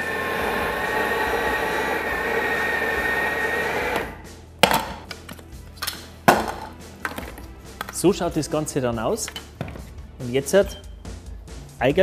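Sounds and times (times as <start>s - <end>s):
food processor whirring: 0.0s - 4.2s.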